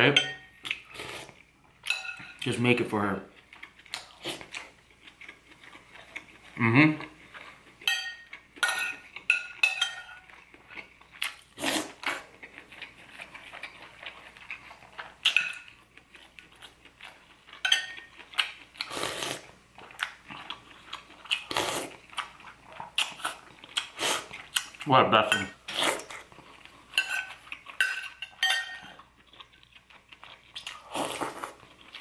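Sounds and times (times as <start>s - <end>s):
spoon clinking on ceramic bowl: 0.1s - 0.5s, 1.8s - 2.4s, 7.9s - 10.3s, 17.6s - 18.1s, 27.0s - 29.0s
chewing: 3.3s - 9.3s, 10.2s - 24.9s, 25.7s - 28.2s, 28.8s - 32.0s
slurping broth: 11.5s - 12.3s, 18.8s - 19.5s, 21.4s - 22.0s, 23.2s - 24.5s, 30.7s - 31.6s.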